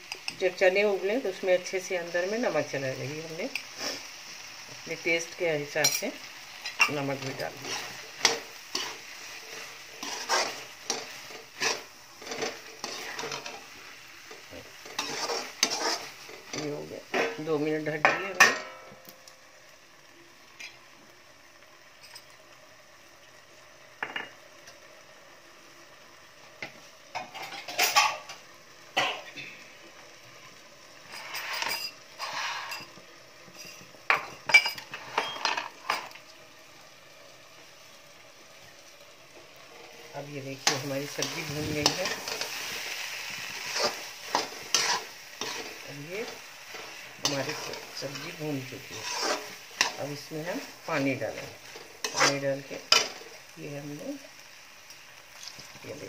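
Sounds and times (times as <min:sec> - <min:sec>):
food sizzling: 0:00.0 - 0:56.0
metal spatula scraping a pan: 0:03.5 - 0:04.2, 0:05.8 - 0:18.9, 0:27.2 - 0:28.4, 0:31.0 - 0:36.2, 0:39.7 - 0:53.4.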